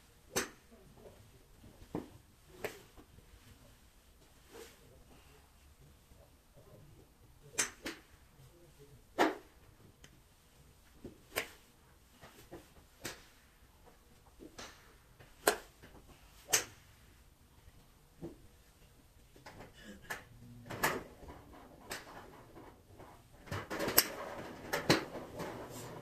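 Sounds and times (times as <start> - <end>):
golf clubs striking balls: 0.3 - 0.7, 7.5 - 8.2, 11.0 - 13.4, 14.3 - 16.9, 19.4 - 22.8, 23.6 - 26.0.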